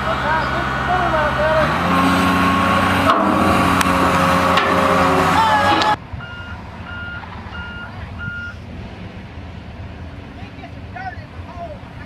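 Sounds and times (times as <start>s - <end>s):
diesel engine drone: 0.0s - 12.0s
backup alarm beeps: 6.2s - 8.6s.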